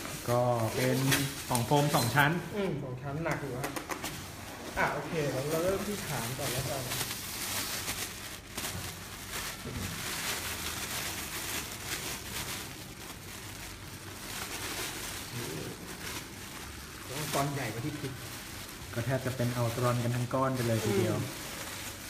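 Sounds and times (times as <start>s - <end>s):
foam packaging rustling and scraping: 0.0s - 22.0s.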